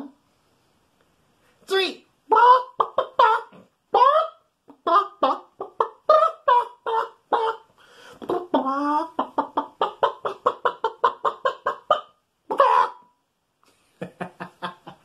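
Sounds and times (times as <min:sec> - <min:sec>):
man imitating a chicken: 0:01.7 - 0:05.4, 0:08.2 - 0:09.4, 0:12.5 - 0:13.0.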